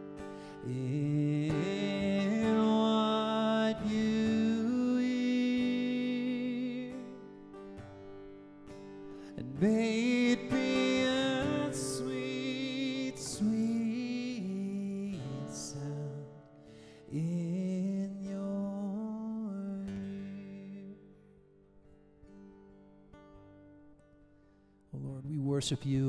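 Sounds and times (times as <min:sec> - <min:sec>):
person singing long held notes: 0:00.0 - 0:07.1, 0:09.3 - 0:16.3.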